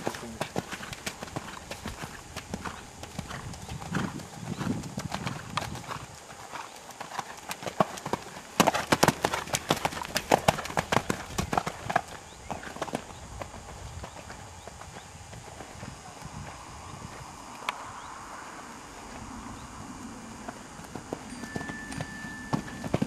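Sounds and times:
horse hoofbeats on sand: 0:00.0 - 0:17.3, 0:20.4 - 0:23.0.

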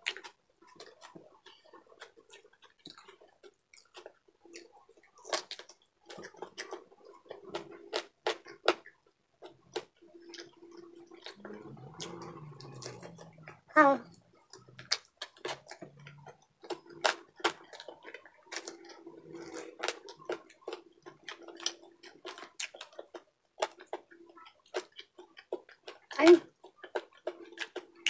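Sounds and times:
lip smacks and chewing: 0:00.0 - 0:13.6, 0:14.3 - 0:28.0.

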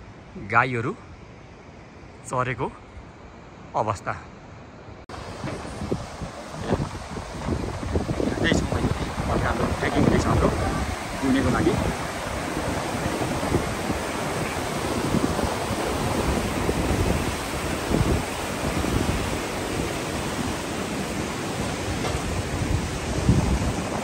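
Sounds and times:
wind buffeting the microphone: 0:05.1 - 0:24.0.

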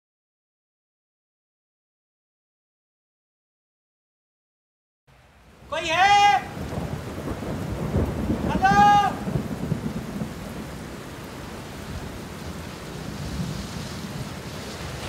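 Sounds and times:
steady rain: 0:05.1 - 0:15.0
low rumbling thunder: 0:06.4 - 0:15.0.

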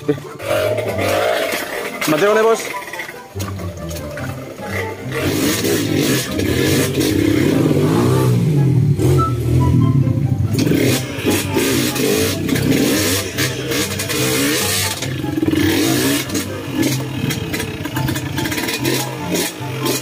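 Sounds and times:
motorcycle engine revving: 0:00.0 - 0:20.0
knocks and rattles on rocks: 0:00.9 - 0:04.9.

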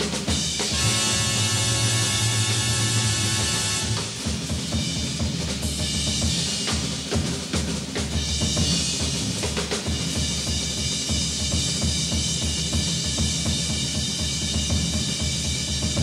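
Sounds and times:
snare drum strokes: 0:00.0 - 0:04.8
cymbals ringing: 0:00.4 - 0:05.1.

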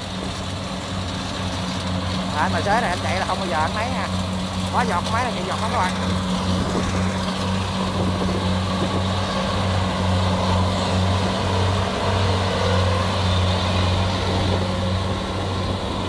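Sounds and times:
combine harvester engine drone: 0:00.0 - 0:16.0
machinery noise: 0:00.0 - 0:16.0.

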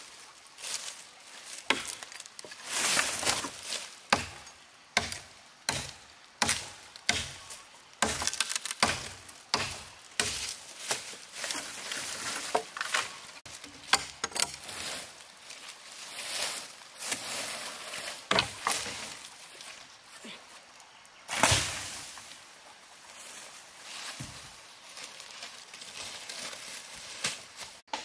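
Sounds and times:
firewood being chopped: 0:01.5 - 0:11.7, 0:12.3 - 0:14.6, 0:18.3 - 0:19.1.

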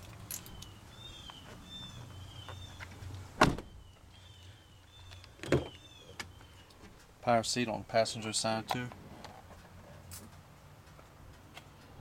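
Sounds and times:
bird chirps: 0:00.4 - 0:02.9, 0:03.6 - 0:06.8
car door shutting with thud: 0:03.4 - 0:03.8, 0:05.4 - 0:05.8.

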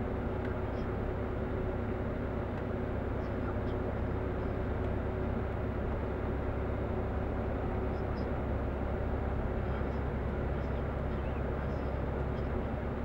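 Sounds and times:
vehicle engine and road noise: 0:00.0 - 0:13.0.

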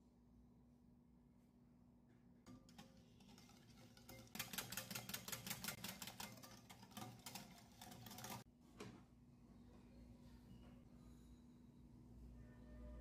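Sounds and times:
whisk clicking against bowl: 0:02.5 - 0:08.5.

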